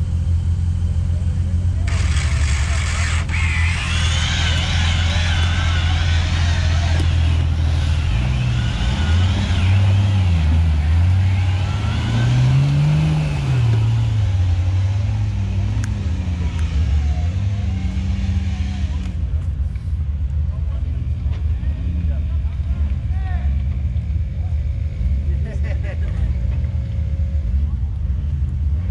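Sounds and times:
off-road engine revving hard: 1.8 - 19.4.

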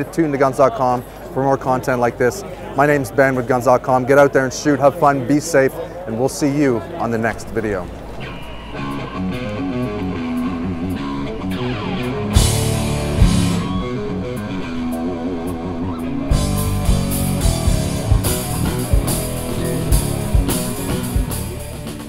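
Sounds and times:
cymbal crash: 7.3 - 21.8
rock music with guitar and drums: 8.0 - 22.0.

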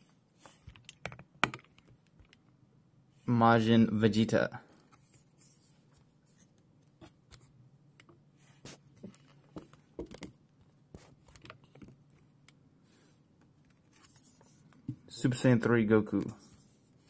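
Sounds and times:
cardboard pages being turned: 13.7 - 14.6.

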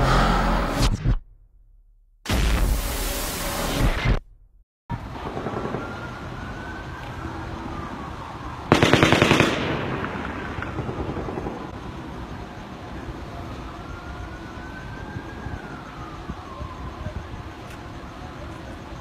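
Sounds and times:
police sirens: 4.9 - 8.8, 9.7 - 19.0
rapid automatic gunfire: 8.7 - 11.7.

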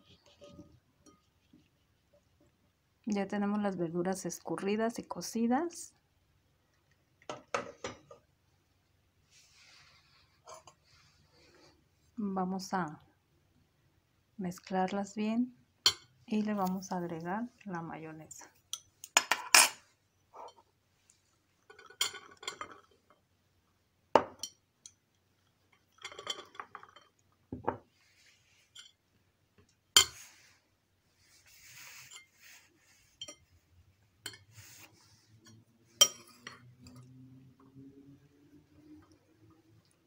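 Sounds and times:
metal spoon clinking on ceramic plate: 18.7 - 19.8, 21.7 - 22.9, 34.2 - 34.5, 35.4 - 37.0.

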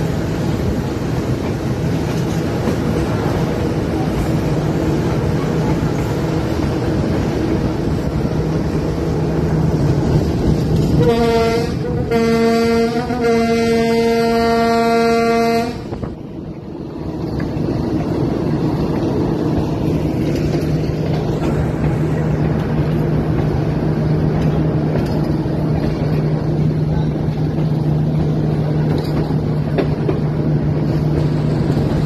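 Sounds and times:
passenger train running on track: 0.0 - 32.0
locomotive horn blasts: 10.9 - 16.0.

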